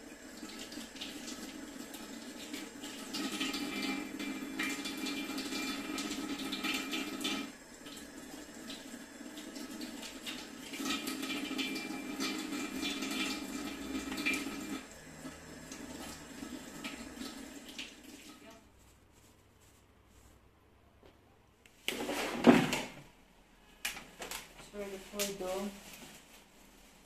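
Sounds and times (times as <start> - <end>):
kitchen tap running: 0.0 - 18.8.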